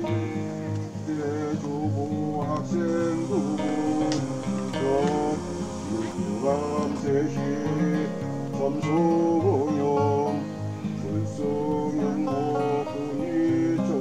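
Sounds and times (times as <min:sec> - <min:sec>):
plucked guitar: 0:00.0 - 0:14.0
gliding melody line: 0:01.9 - 0:10.0.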